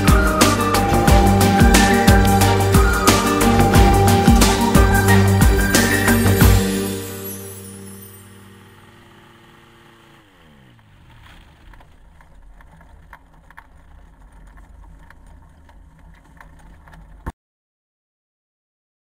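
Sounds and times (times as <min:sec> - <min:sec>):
aircraft engine winding down: 0:00.0 - 0:17.3
faint low rumble: 0:10.8 - 0:17.3
scattered clicks: 0:11.5 - 0:17.3.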